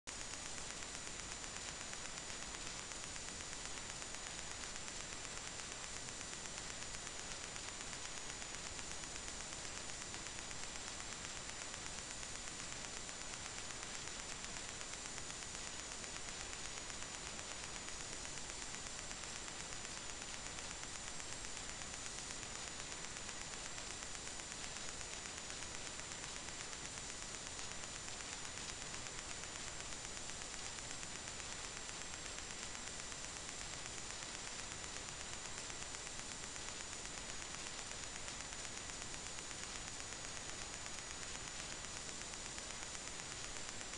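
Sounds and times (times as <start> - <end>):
electronic hiss: 0.1 - 43.9
faint high-pitched whine: 0.1 - 43.9.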